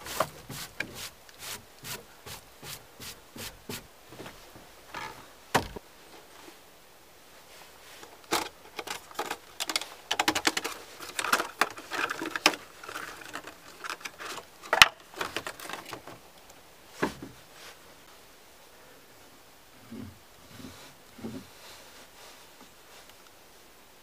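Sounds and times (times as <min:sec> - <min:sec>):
cardboard and plastic box crinkling: 0:08.3 - 0:16.2.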